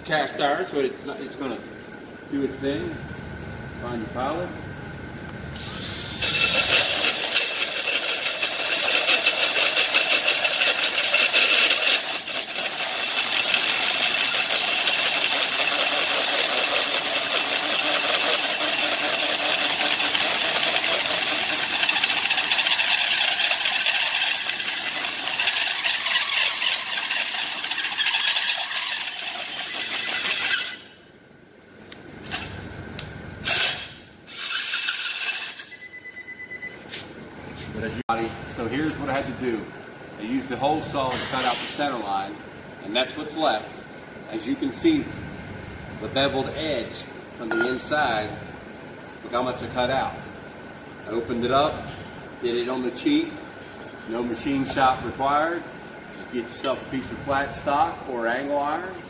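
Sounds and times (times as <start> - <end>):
drill hole saw cutting metal: 5.6 - 31.0, 33.4 - 35.8.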